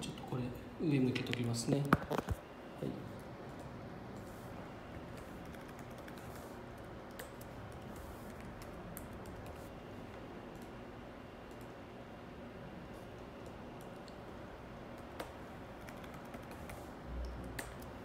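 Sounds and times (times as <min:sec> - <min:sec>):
room noise: 0:00.0 - 0:18.0
computer keyboard typing: 0:05.0 - 0:09.7, 0:11.4 - 0:11.8, 0:13.2 - 0:14.2, 0:14.9 - 0:18.0.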